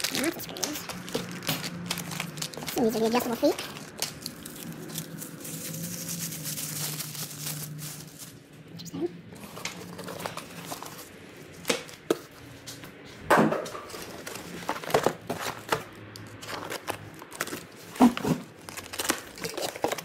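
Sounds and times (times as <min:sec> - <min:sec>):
cardboard rustling and scraping: 0:09.4 - 0:12.7, 0:13.6 - 0:20.0.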